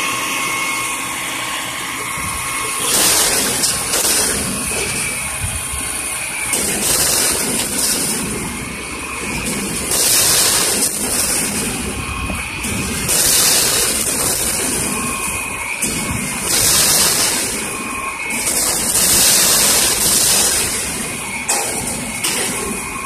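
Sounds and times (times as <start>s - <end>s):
truck engine surging: 0.0s - 23.0s
loud hydraulic hiss: 6.5s - 8.5s, 9.4s - 22.8s.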